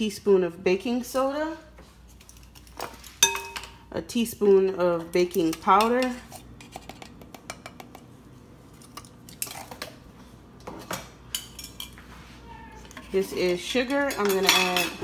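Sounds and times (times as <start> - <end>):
spoon scraping: 5.3 - 8.1.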